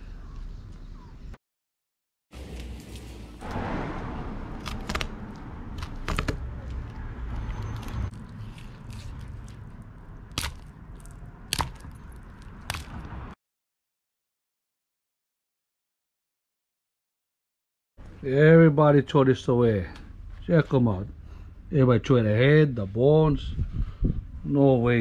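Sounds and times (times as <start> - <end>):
knife crunching through fish: 4.6 - 6.4, 7.8 - 13.0
bone cracking: 4.6 - 7.0, 7.7 - 13.1.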